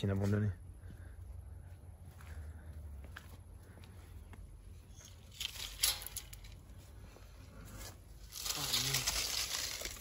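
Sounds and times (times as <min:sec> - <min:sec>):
steady rustle: 0:04.7 - 0:10.0
sharp crackles: 0:05.0 - 0:06.6, 0:08.2 - 0:10.0.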